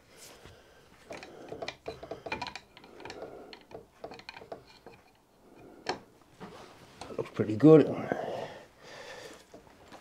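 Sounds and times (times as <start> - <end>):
metal clicks and knocks: 1.1 - 5.2.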